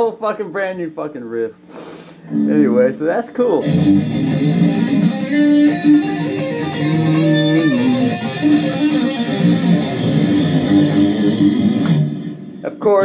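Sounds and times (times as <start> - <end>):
electric guitar riff: 2.2 - 12.6.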